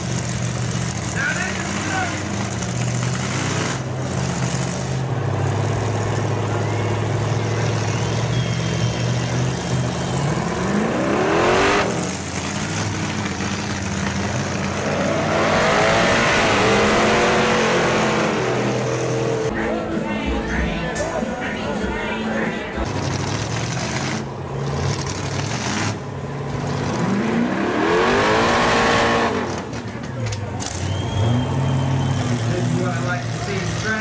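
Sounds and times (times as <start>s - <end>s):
truck engine rumbling and revving: 0.0s - 34.0s.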